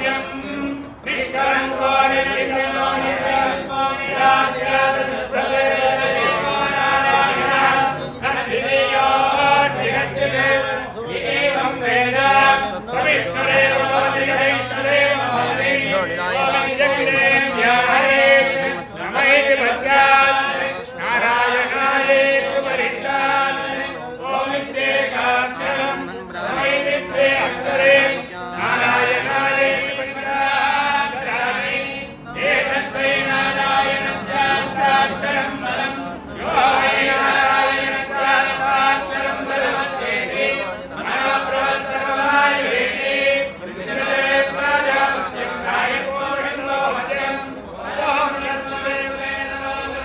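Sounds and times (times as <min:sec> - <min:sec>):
group of men chanting: 0:00.0 - 0:50.0.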